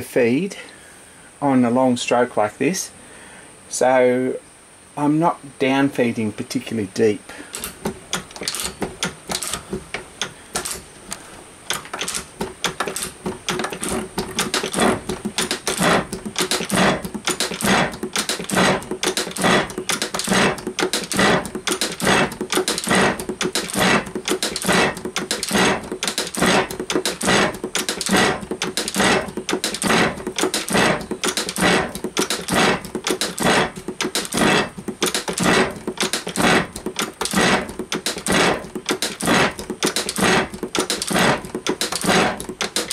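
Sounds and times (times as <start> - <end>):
metal shaper clattering: 7.5 - 10.9, 11.7 - 42.9.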